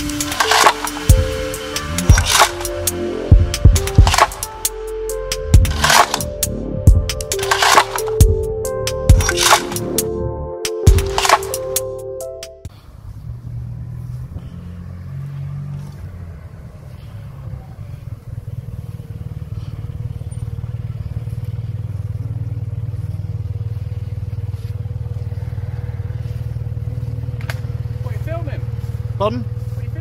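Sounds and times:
scooter engine idling: 0:00.0 - 0:05.8, 0:12.7 - 0:14.5, 0:15.9 - 0:30.0.

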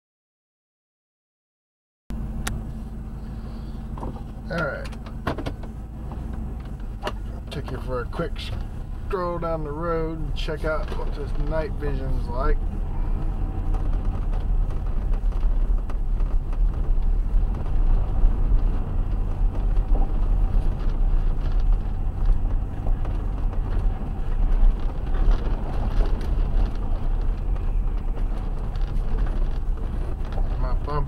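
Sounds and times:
car engine and road noise: 0:02.1 - 0:31.0.

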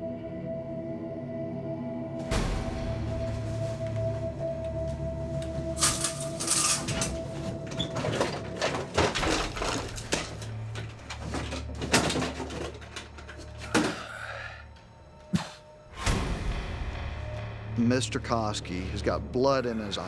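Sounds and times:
dark low music drone: 0:00.0 - 0:20.0.

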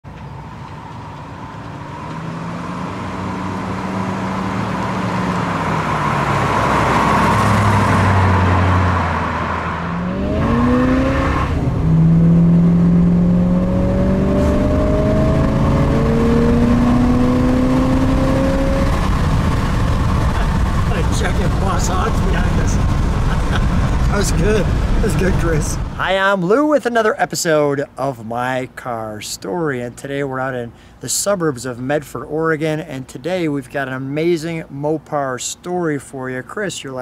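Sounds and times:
car engine revving: 0:01.2 - 0:26.3.

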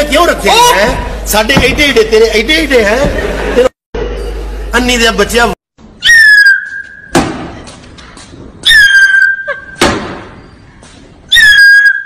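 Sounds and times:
shrill whistle blasts: 0:06.0 - 0:07.2, 0:08.6 - 0:09.7, 0:11.3 - 0:12.0
sharp slap: 0:07.1 - 0:07.6, 0:09.8 - 0:10.3.

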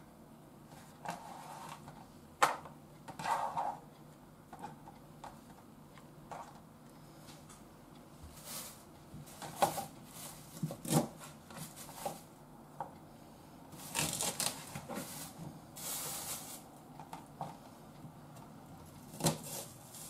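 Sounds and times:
rustling of green onion: 0:13.8 - 0:16.7.

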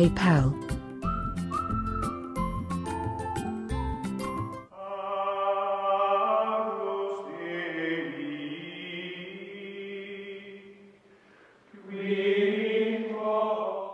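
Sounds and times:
choir-like chanting music: 0:04.7 - 0:10.9, 0:11.7 - 0:13.9.

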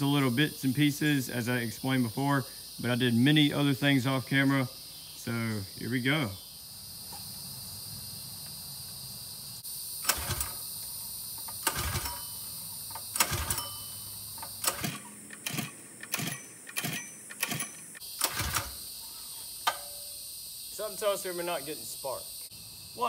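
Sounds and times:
recoil starter pull whirs: 0:10.0 - 0:10.7, 0:11.4 - 0:18.9.

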